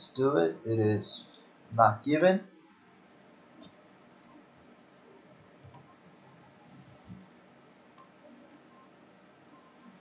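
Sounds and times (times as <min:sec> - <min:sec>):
computer mouse and keyboard clicks: 0:07.1 - 0:08.8.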